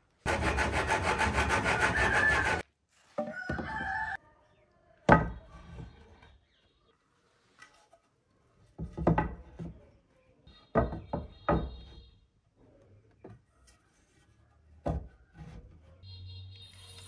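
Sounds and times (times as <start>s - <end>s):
wooden boards knocking: 8.8s - 9.7s, 10.7s - 11.9s.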